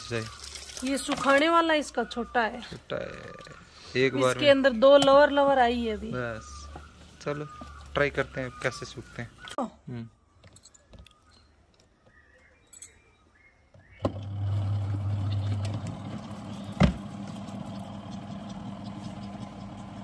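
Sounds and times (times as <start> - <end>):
spin-dryer motor humming: 14.0 - 20.0.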